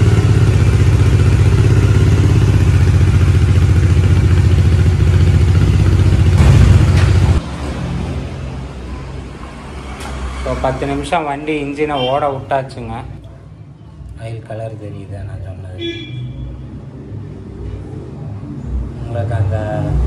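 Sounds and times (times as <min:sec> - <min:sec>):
motorcycle engine idling: 0:00.0 - 0:07.4.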